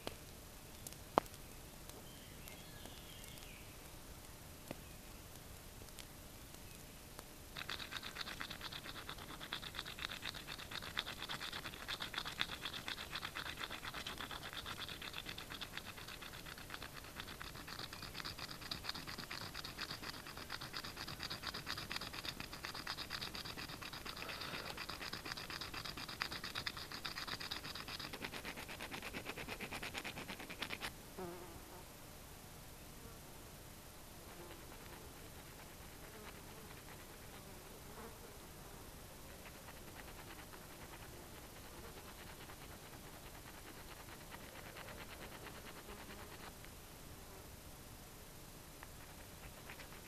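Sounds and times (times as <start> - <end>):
hand tool scratching hard surface: 7.6 - 30.9.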